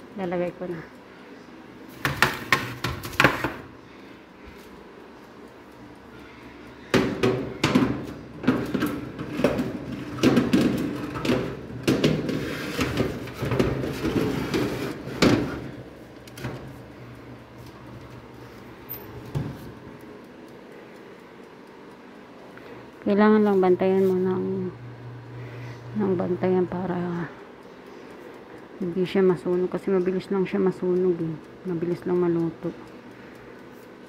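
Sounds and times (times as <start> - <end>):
oven door knocks: 7.0 - 15.6
metal baking tray clattering: 8.5 - 15.6.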